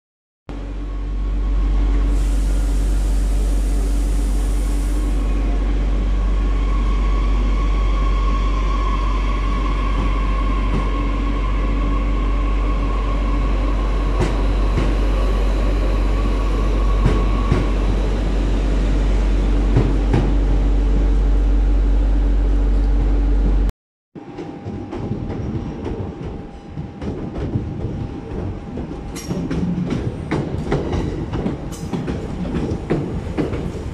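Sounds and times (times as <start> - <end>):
electric train hum and whine: 0.5 - 33.9
train wheels clicking over rail joints: 24.3 - 33.9.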